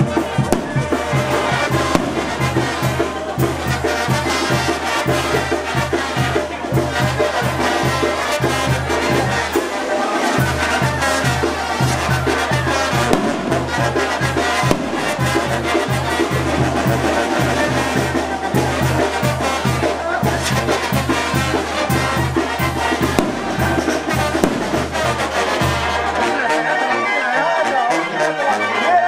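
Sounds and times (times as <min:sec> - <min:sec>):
brass band playing: 0:00.0 - 0:29.0.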